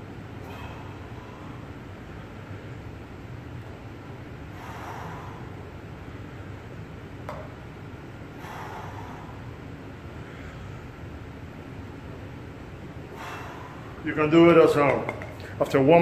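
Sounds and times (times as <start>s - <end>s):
low hum: 0.0s - 16.0s
man breathing forcefully: 0.4s - 2.4s, 4.4s - 6.8s, 8.3s - 11.0s, 13.0s - 14.0s.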